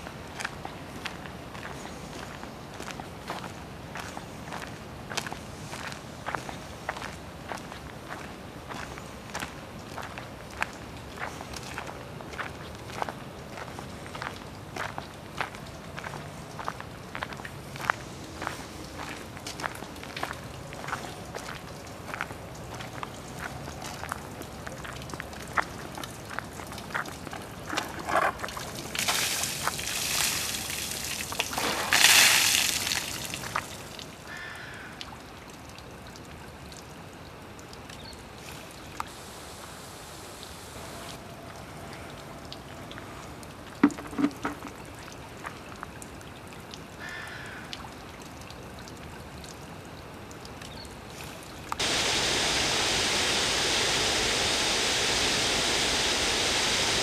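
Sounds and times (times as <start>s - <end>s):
water trickling into fountain basin: 0.0s - 39.2s, 41.2s - 54.5s
fountain cascades rushing: 28.1s - 34.0s, 51.7s - 57.0s.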